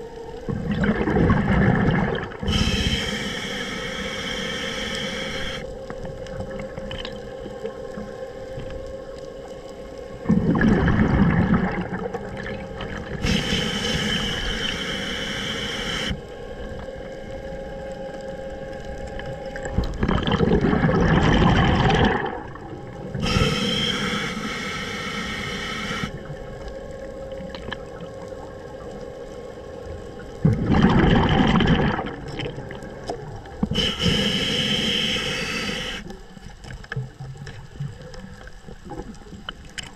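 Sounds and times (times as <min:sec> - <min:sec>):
exhaled bubbles gushing: 0:00.0 - 0:02.9, 0:10.2 - 0:13.4, 0:19.4 - 0:23.4, 0:30.2 - 0:34.2
regulator hissing on inhale: 0:02.4 - 0:05.8, 0:13.0 - 0:16.8, 0:23.1 - 0:26.4, 0:33.6 - 0:36.4.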